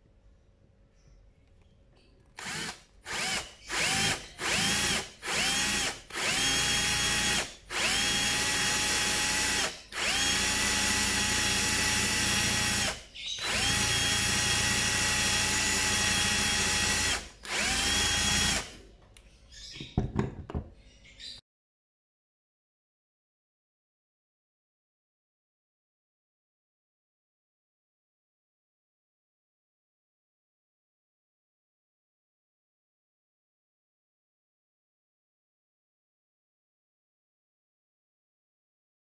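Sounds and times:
electric drill whining: 2.4 - 18.8.

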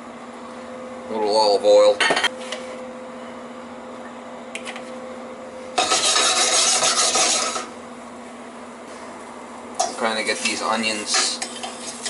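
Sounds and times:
onions tossing in pan: 5.8 - 7.7
saucepan scraping on stove grate: 5.8 - 7.7.

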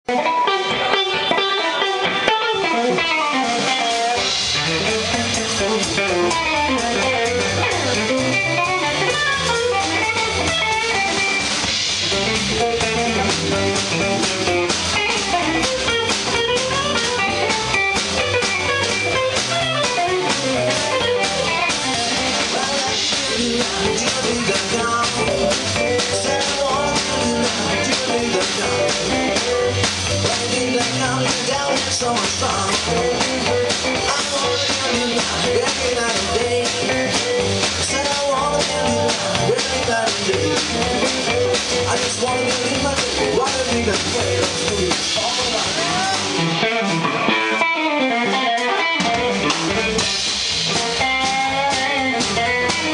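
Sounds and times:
bass: 0.0 - 52.9
drums: 0.0 - 52.9
electric guitar: 0.0 - 52.9.

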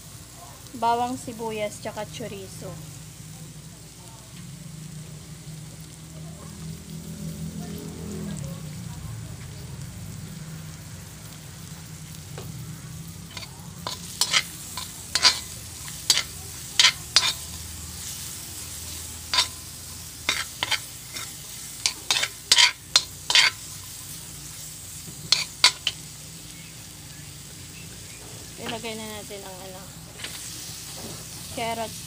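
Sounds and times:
food sizzling in oil: 0.0 - 32.0
metal spatula scraping a wok: 13.1 - 26.1.

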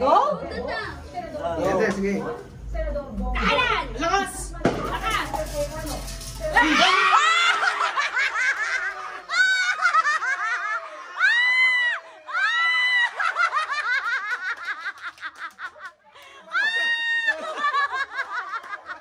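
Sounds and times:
high-pitched shrieks of laughter: 6.6 - 8.1, 8.8 - 13.6, 16.4 - 17.6
group of people laughing: 6.6 - 19.0.

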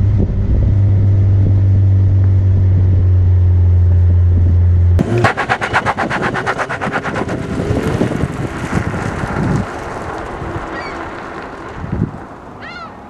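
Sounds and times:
sharp exhaust pulses: 0.0 - 13.0
car accelerating away hard: 5.0 - 13.0.

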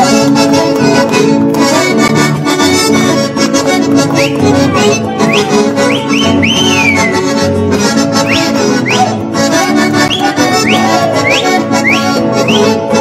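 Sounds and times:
accordion dance music: 0.0 - 13.0
men whistling through fingers: 4.1 - 7.4, 8.1 - 9.2, 10.0 - 12.9.

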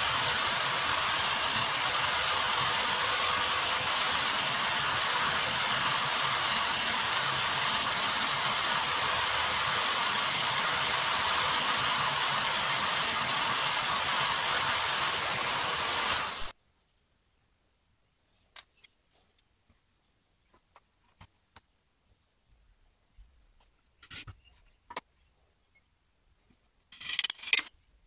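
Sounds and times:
electric drill motor whine: 0.0 - 16.5.

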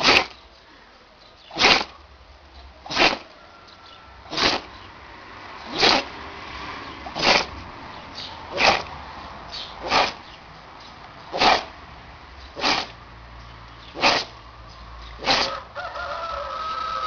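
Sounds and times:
dog sneezing: 0.0 - 0.3, 1.5 - 2.0, 2.8 - 3.2, 4.3 - 4.7, 5.7 - 6.1, 7.1 - 7.6, 8.5 - 8.9, 9.8 - 10.2, 11.3 - 11.7, 12.6 - 13.0, 14.0 - 14.4, 15.2 - 15.5.

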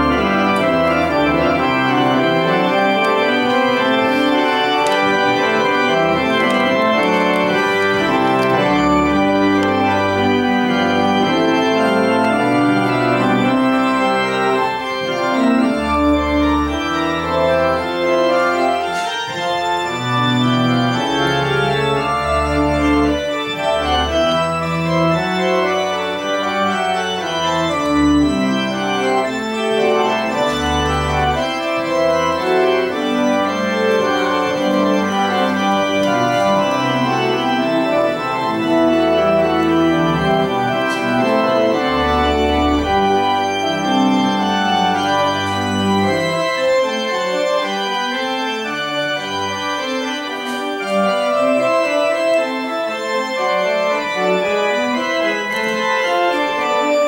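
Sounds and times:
church organ playing: 0.0 - 57.0.

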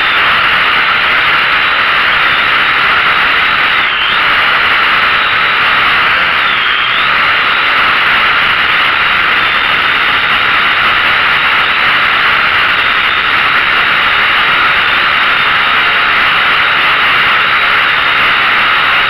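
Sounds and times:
quadcopter drone whirring: 0.0 - 19.0.

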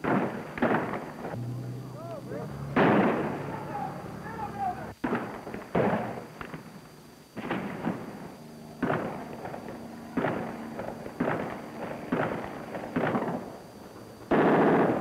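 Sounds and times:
gunshots with echo: 0.0 - 4.4, 7.4 - 13.5, 14.3 - 15.0.

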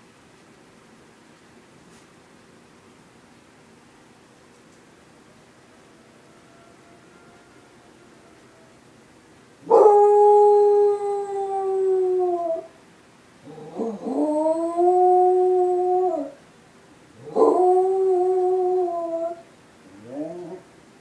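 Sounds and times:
civil defense siren: 6.0 - 8.8
dog howling: 9.6 - 12.7, 13.4 - 16.4, 17.2 - 20.7.

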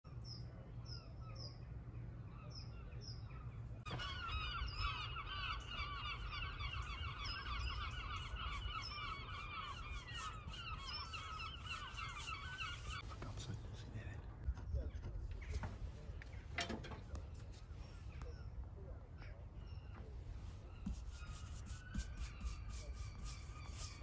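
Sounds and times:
flock of birds chattering: 2.4 - 24.0
high bird chirps: 2.7 - 13.1, 20.6 - 24.0.

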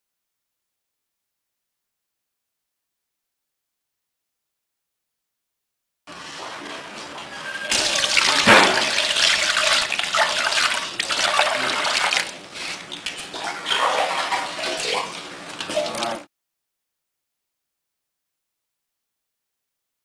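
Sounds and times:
water splashing on stone: 7.7 - 12.3.

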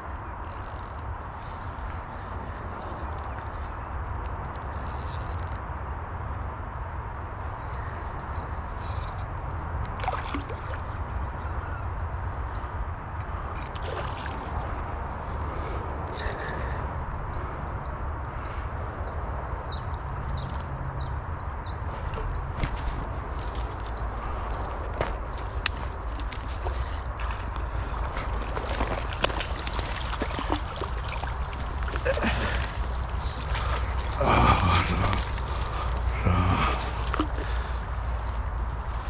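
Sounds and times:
bird chirping: 16.1 - 39.0
fish splashing at surface: 29.1 - 35.4.

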